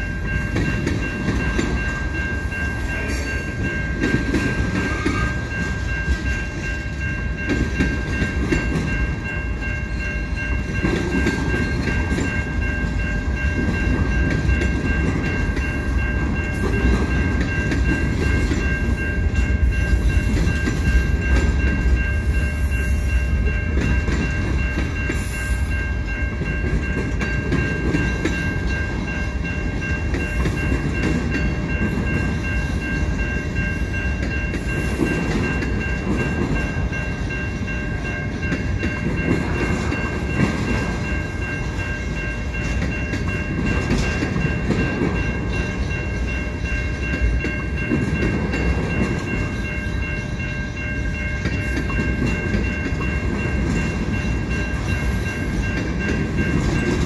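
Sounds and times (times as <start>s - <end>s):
freight train rumbling past: 0.0s - 57.0s
steady high-pitched tones: 0.0s - 57.0s.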